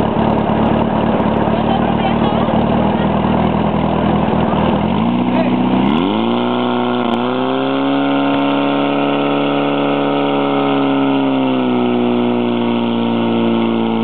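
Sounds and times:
pump engine running at full throttle: 0.0s - 14.0s.

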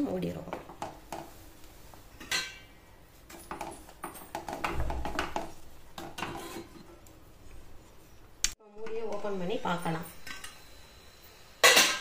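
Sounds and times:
wooden spatula scraping steel pan: 6.0s - 6.9s.

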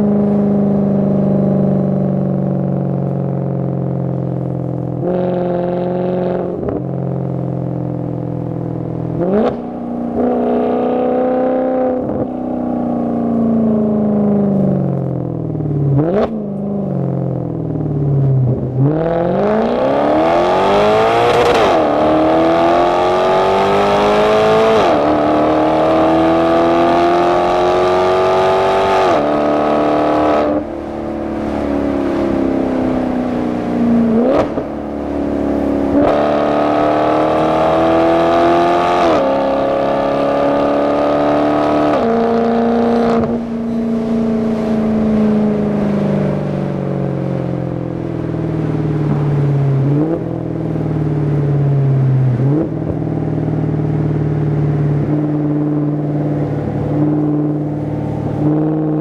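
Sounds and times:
sports car engine cruising: 0.0s - 59.0s
car accelerating hard: 4.7s - 7.0s, 9.1s - 12.5s, 18.3s - 47.5s, 48.9s - 59.0s
throttle blips on downshifts: 13.3s - 46.2s.

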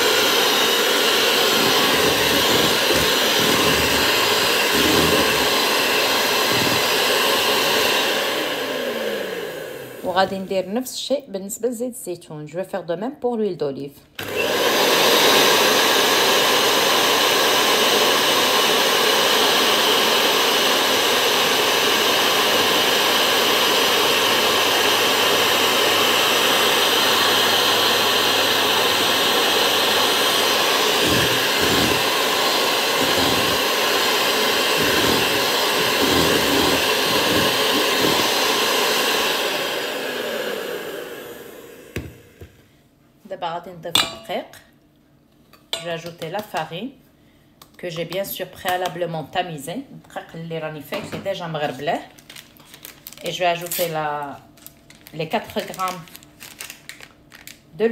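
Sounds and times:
electric hand mixer whisking batter: 0.0s - 10.5s, 14.2s - 42.4s.

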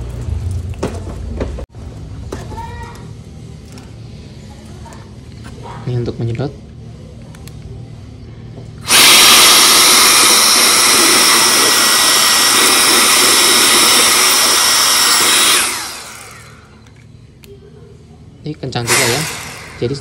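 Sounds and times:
electric blower rushing and whining: 8.8s - 16.7s, 18.8s - 20.0s.

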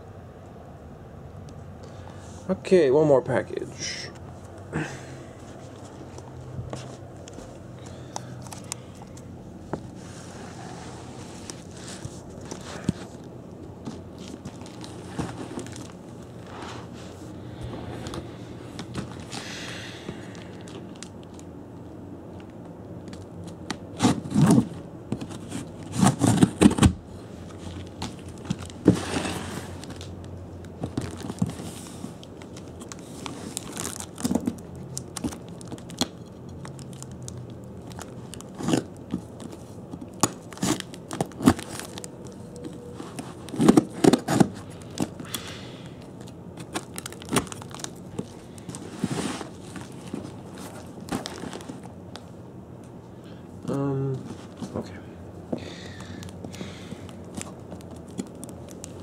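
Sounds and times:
cardboard scraping and crunching: 9.9s - 13.2s, 13.8s - 17.2s, 23.9s - 30.0s, 42.6s - 45.2s, 46.6s - 51.9s.

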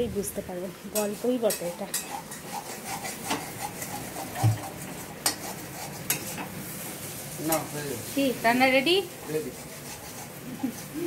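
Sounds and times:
food sizzling: 0.0s - 11.0s
metal spoon scraping frying pan: 0.9s - 7.8s, 9.3s - 11.0s.

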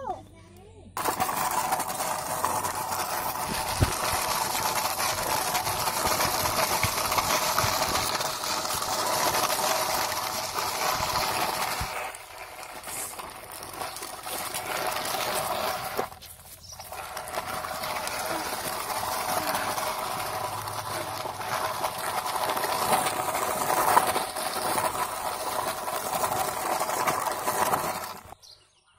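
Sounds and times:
plastic toy truck grinding rattle: 1.0s - 28.4s.

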